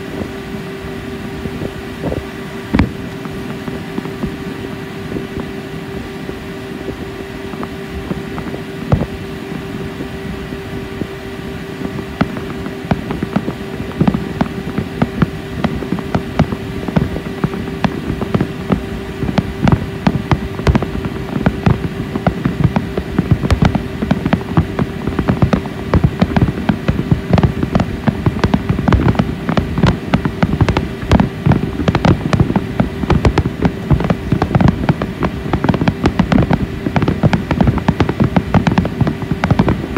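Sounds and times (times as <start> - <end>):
fireworks bangs and crackles: 0.0 - 39.9
steady low hum: 0.0 - 39.9.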